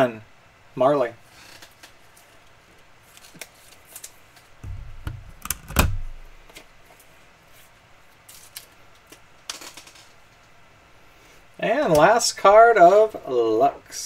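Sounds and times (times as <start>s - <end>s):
plastic holder snapping shut: 4.6s - 6.2s
low thud: 4.6s - 6.4s.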